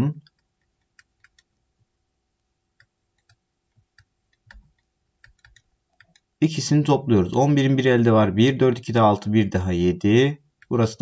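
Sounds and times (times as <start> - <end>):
faint clicks and taps on screen: 0.2 - 6.4.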